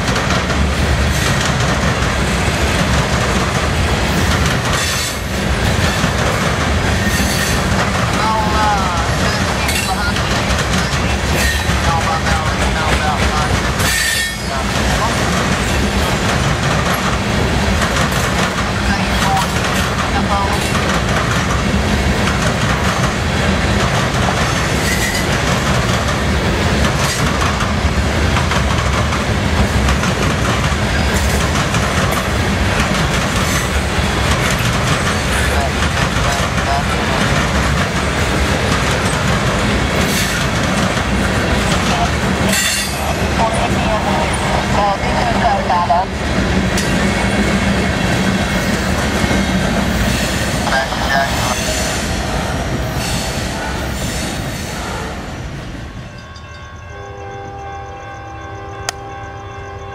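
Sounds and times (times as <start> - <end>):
wheels clacking over rail joints: 0.0 - 44.5
train wheels rumbling on rail: 0.0 - 59.9
high wheel squeal: 6.9 - 7.6, 13.8 - 14.6.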